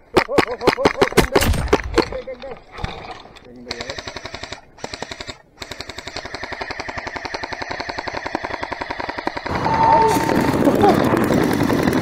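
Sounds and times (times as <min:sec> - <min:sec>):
airsoft rifle firing rapidly: 0:03.7 - 0:12.0.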